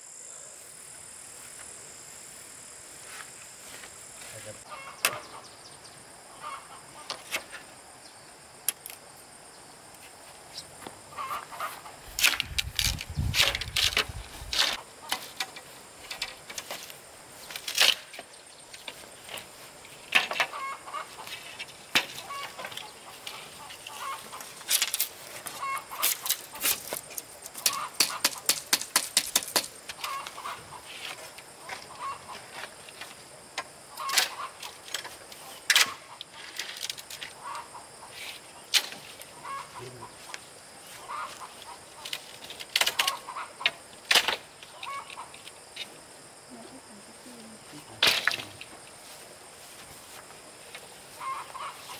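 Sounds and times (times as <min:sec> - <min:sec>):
chickens clucking: 0:04.6 - 0:05.5, 0:11.1 - 0:13.7, 0:20.2 - 0:24.7, 0:25.5 - 0:26.8, 0:27.6 - 0:28.5, 0:29.9 - 0:32.8, 0:33.9 - 0:36.4, 0:39.4 - 0:42.3, 0:42.9 - 0:43.8, 0:44.7 - 0:45.4, 0:51.1 - 0:51.9
sharp knocks and clicks: 0:27.5 - 0:30.0.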